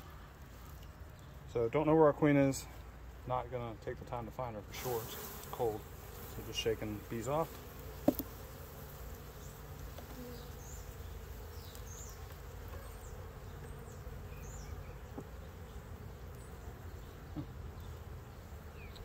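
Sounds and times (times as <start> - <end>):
honeybees humming: 4.2 - 19.0.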